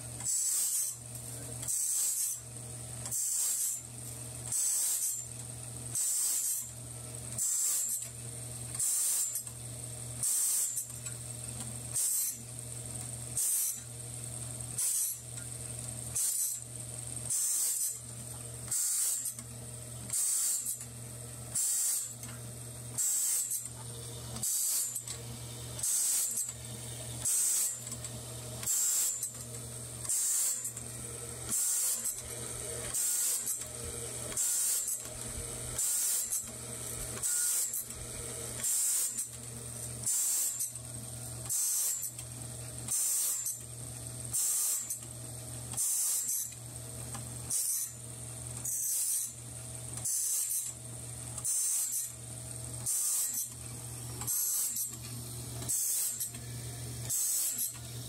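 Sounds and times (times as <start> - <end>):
grinding wheel hissing on blade: 0.3 - 1.0, 1.6 - 2.4, 3.1 - 3.9, 8.8 - 9.4, 17.3 - 18.0, 18.7 - 19.4, 20.1 - 20.8, 21.5 - 22.2, 22.9 - 29.4, 30.0 - 40.7, 52.8 - 53.6, 54.2 - 55.0, 55.6 - 57.9
machine motors humming: 22.9 - 38.7.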